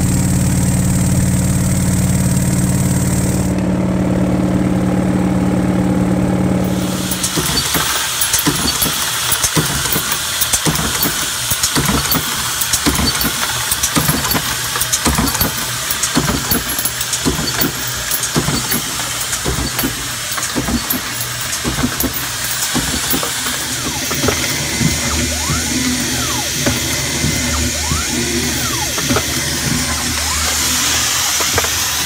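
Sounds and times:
motor hum: 6.2 - 32.0
rapid metal clicks clattering: 6.6 - 32.0.

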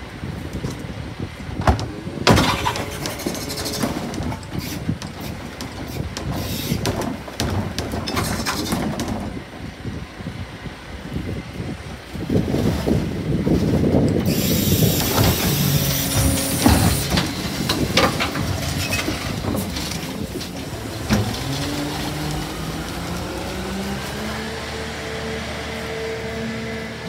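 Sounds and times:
clanks and rattling rubbish: 1.6 - 9.6, 12.5 - 23.3
garbage truck engine revving: 14.2 - 27.0
hydraulic hiss: 14.3 - 17.2.

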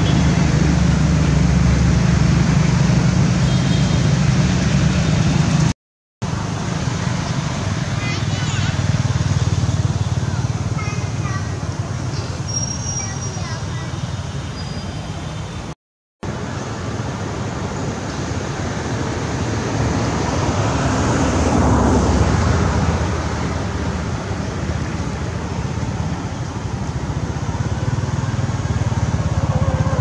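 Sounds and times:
vehicle passing: 18.3 - 30.0.

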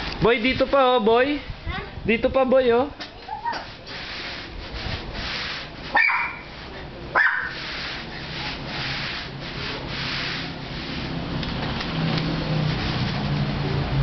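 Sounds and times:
push broom scrubbing wet concrete: 0.2 - 1.2, 3.3 - 14.0
short high yelps: 6.0 - 6.5, 7.2 - 7.6.

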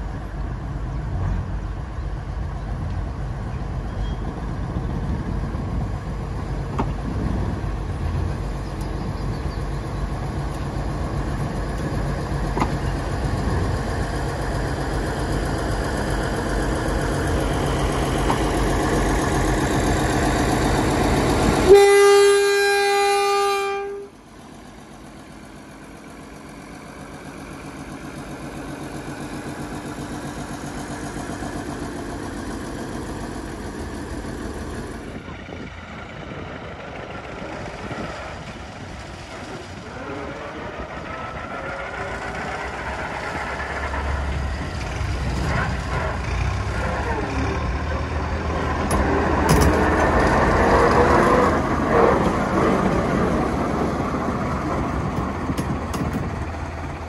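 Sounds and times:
diesel locomotive engine running: 0.0 - 57.0
locomotive horn blast: 21.6 - 24.2.

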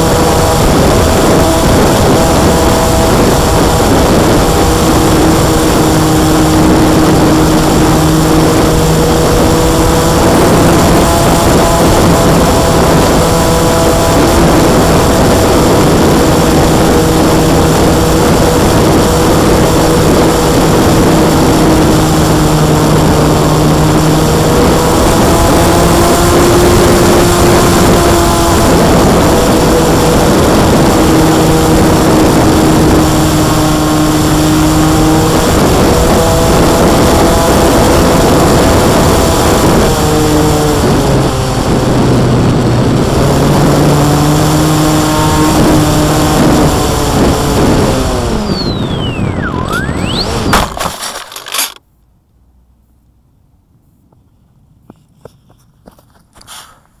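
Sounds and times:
model airplane motor and propeller: 0.0 - 51.8
rushing wind noise: 0.0 - 51.8.

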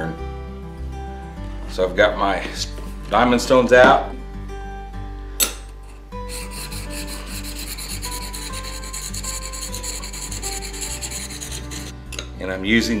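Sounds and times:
plane iron rasping on sharpening stone: 6.2 - 11.9.

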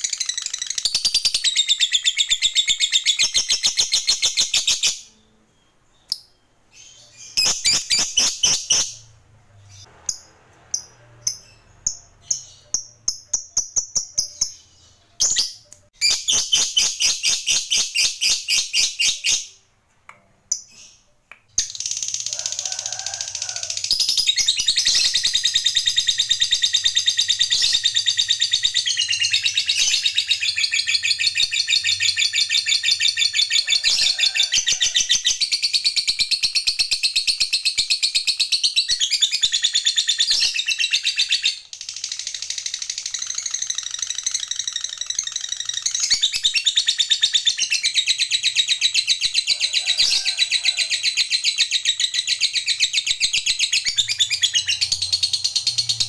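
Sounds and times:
lovebird chattering trill: 6.8 - 9.1, 9.7 - 19.6.

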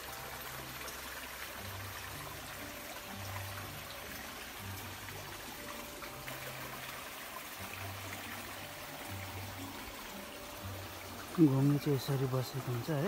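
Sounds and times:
stream trickling over stones: 0.0 - 13.0.

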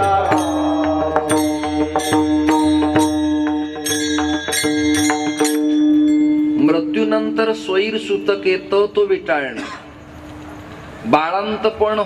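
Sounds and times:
hand cymbals struck: 0.0 - 10.7
steady held drone: 0.0 - 11.1
man's voice: 6.6 - 9.8, 11.1 - 12.0.

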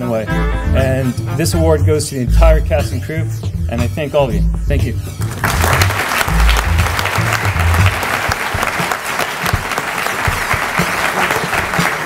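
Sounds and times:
music with low bass: 0.3 - 8.7
audience applauding: 5.2 - 12.0.

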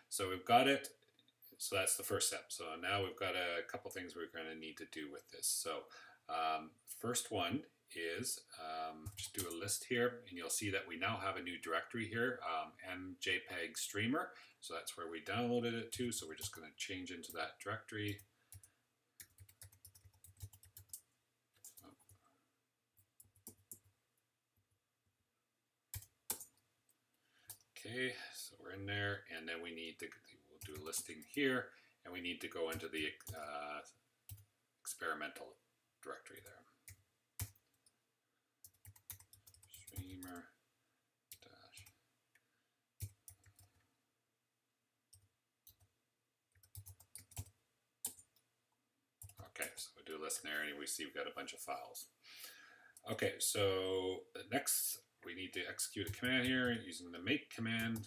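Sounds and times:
keyboard typing: 18.1 - 22.2, 25.9 - 26.6, 36.4 - 37.9, 38.6 - 40.4, 46.5 - 48.4.

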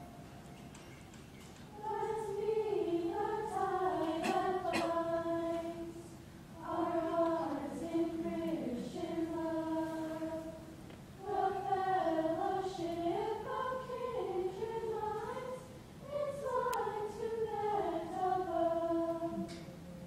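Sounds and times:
choir singing a hymn: 1.7 - 19.8.

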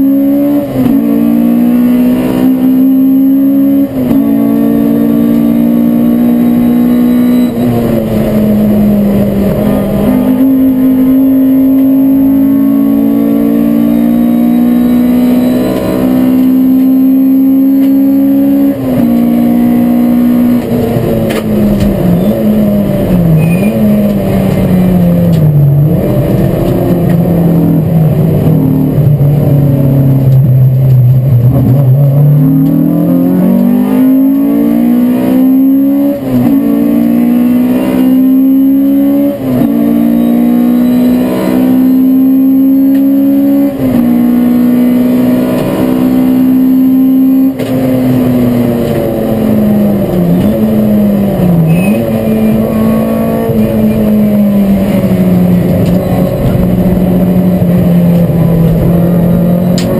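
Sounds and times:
race car engine: 0.0 - 59.9.

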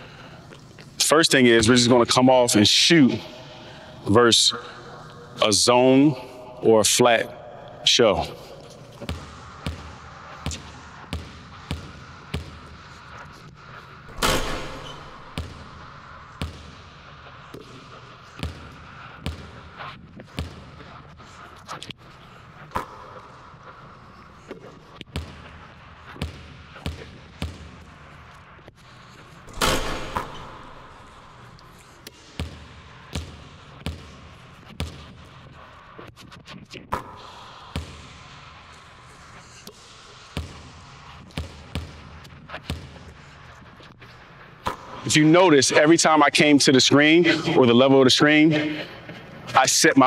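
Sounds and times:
basketball bouncing on hardwood: 29.6 - 30.7.

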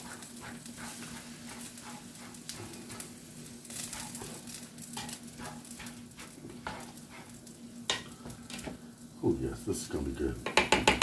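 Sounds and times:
spatula scraping a pot: 0.0 - 8.1
steady low hum: 0.0 - 10.5
faint sizzle: 0.0 - 11.0.

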